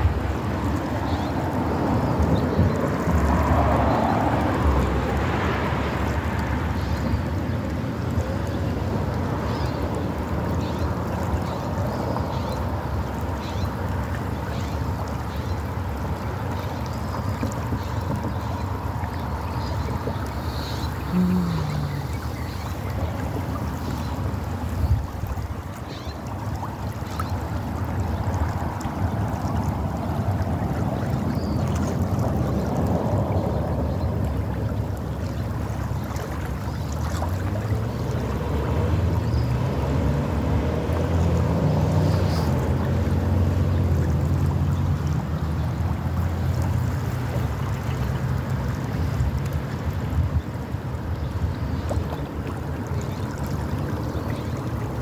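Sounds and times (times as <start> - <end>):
flowing creek: 0.0 - 55.0.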